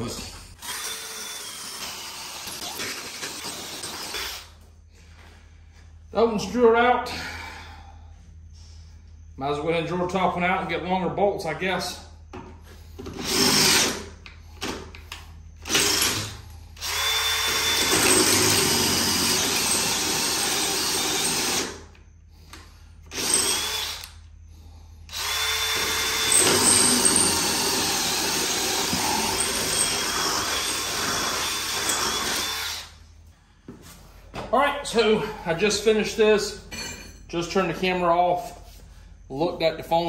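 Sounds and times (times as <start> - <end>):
cordless drill cutting metal: 0.6 - 4.5, 13.2 - 14.0, 15.6 - 21.8, 23.1 - 24.2, 25.1 - 33.0.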